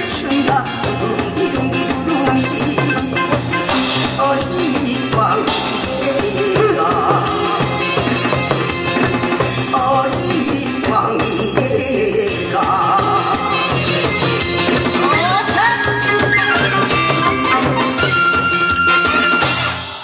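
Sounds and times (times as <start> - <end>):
lively music with steady beat: 0.0 - 20.0.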